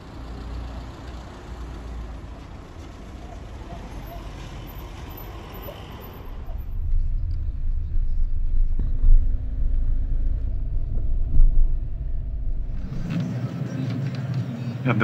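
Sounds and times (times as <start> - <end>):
car driving rumble from inside: 2.4 - 14.3.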